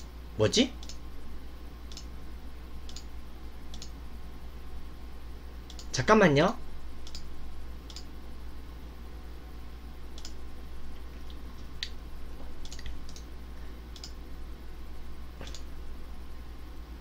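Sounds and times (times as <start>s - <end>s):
steady low hum: 0.0s - 17.0s
light clicks: 3.7s - 3.9s, 7.0s - 7.3s, 13.9s - 14.2s.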